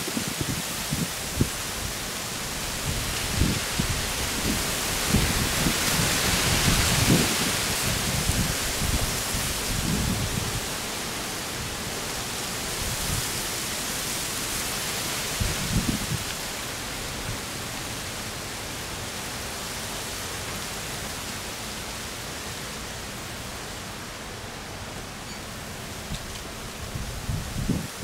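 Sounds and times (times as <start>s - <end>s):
outdoor weather hiss: 0.0s - 28.0s.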